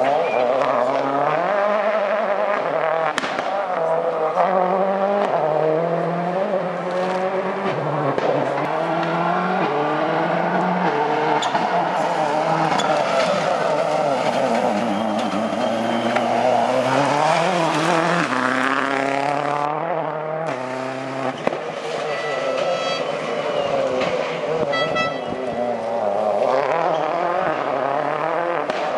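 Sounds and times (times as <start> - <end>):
rally car engine revving: 0.0 - 28.9.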